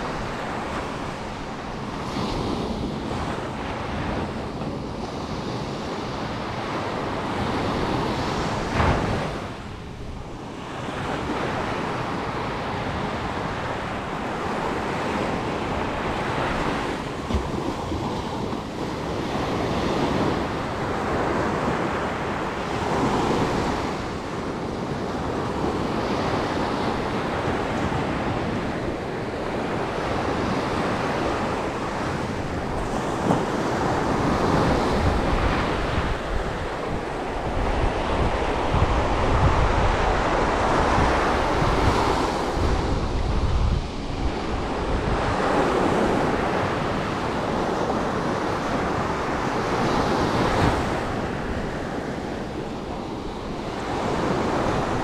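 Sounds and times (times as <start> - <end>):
surf washing onto beach: 0.0 - 24.4
wind buffeting microphone: 0.0 - 55.0.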